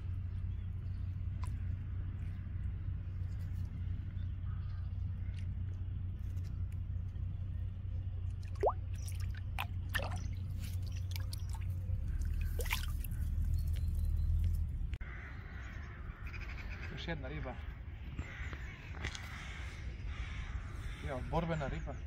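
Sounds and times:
steady low rumble: 0.0 - 16.8
water dripping and plopping: 8.3 - 13.5.

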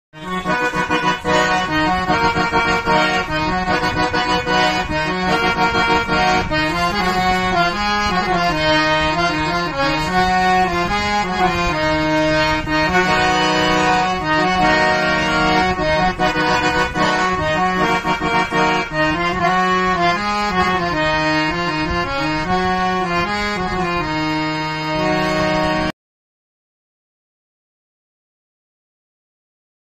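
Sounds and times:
harmonium playing melody: 0.2 - 26.0.

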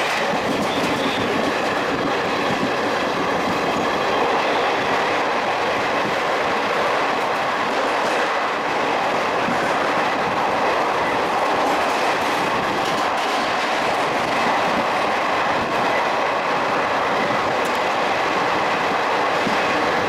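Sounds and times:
train wheels on rails: 0.0 - 20.0.

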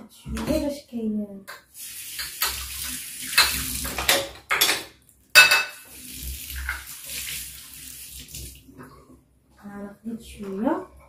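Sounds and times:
kitchenware clattering: 3.3 - 6.0.

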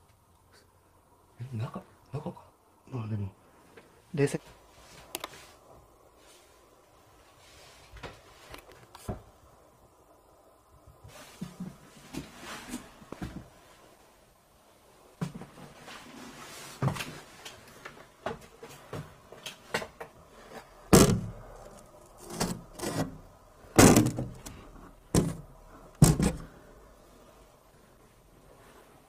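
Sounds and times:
wooden door knocks and rattles: 23.8 - 24.4, 25.2 - 25.4, 26.0 - 26.4.

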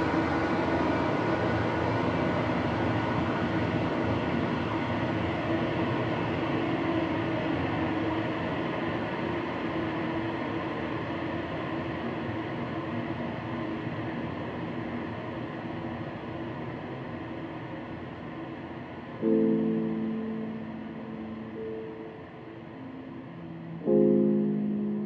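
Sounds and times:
faint held tones: 19.2 - 25.0
rumbling drone: 19.2 - 25.0.

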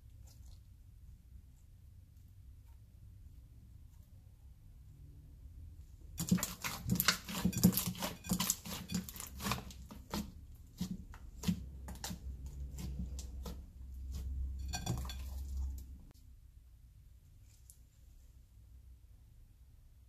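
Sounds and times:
slime squelching and popping: 6.1 - 15.8.

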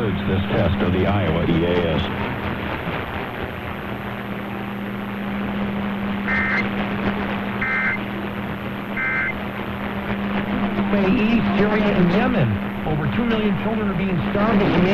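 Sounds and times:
low hum: 0.0 - 14.9
radio static hiss: 0.0 - 14.9
short high beeps: 7.6 - 8.0.

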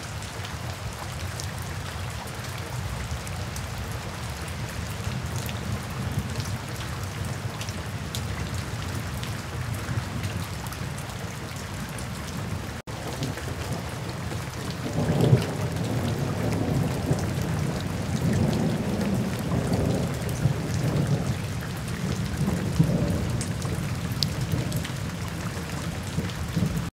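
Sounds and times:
rain falling on wet pavement: 0.0 - 26.9
thunder rumbling: 13.2 - 26.9.

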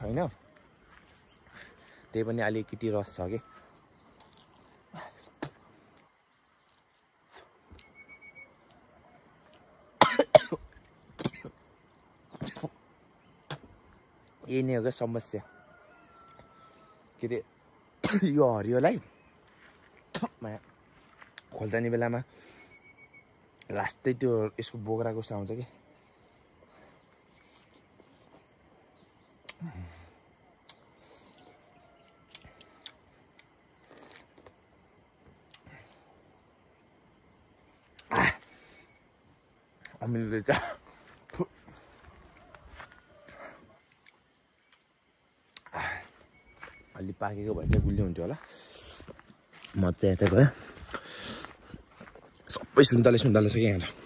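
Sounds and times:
insect trill: 0.0 - 54.0
man coughing and spluttering: 10.0 - 11.6, 12.4 - 12.8, 18.0 - 18.4, 20.1 - 20.4
outdoor hiss: 50.6 - 51.8.

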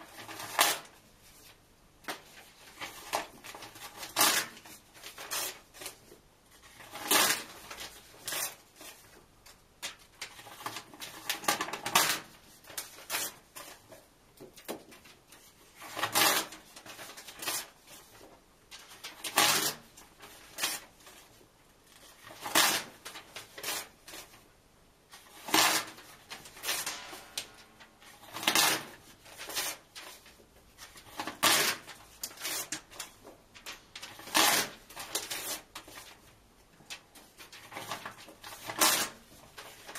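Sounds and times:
paper tearing: 2.8 - 6.0, 6.6 - 9.0, 15.8 - 18.1, 18.8 - 21.3, 21.9 - 24.4, 25.1 - 36.2, 37.3 - 39.9
paper rustling: 25.1 - 39.9.

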